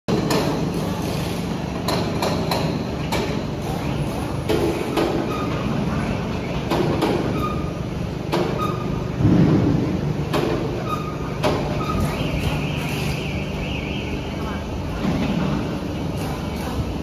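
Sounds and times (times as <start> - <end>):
machinery hum: 0.1 - 17.0
loud thud: 9.2 - 10.1.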